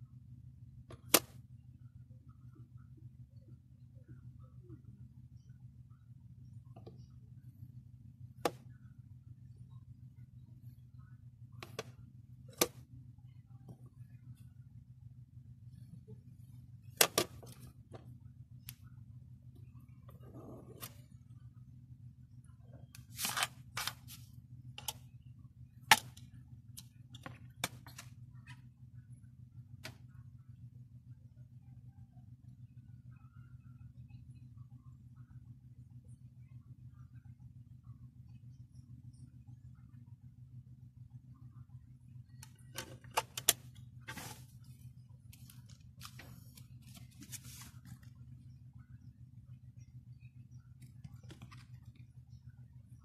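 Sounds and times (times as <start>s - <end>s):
low steady hum: 0.0s - 53.0s
paper cards rustling and sliding: 23.0s - 24.3s, 45.3s - 48.1s.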